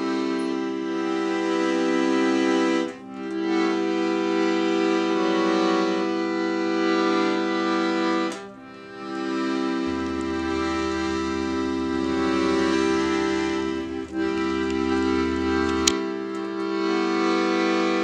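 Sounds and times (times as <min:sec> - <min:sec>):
slow sustained chords: 0:08.5 - 0:17.4.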